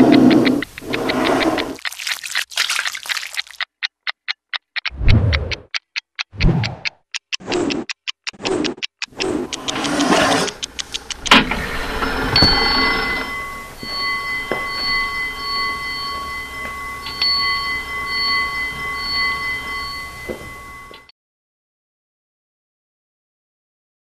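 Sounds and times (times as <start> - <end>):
clock spinning rattling whir: 0.0 - 21.1
sharp click: 3.6 - 12.0
bell-like metallic ringing: 11.0 - 21.1.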